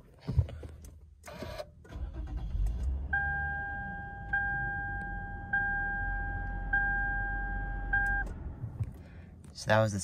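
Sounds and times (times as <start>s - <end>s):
car engine starting and idling: 0.6s - 10.0s
dashboard warning chime: 3.2s - 8.2s.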